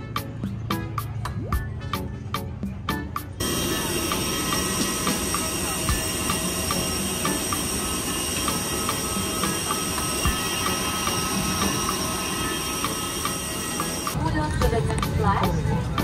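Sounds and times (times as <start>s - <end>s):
vehicle ride rumble and whine: 0.0s - 16.0s.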